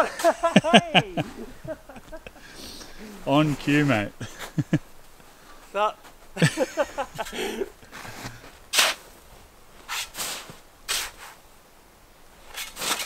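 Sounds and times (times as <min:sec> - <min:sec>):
snow crunching: 0:00.0 - 0:13.0.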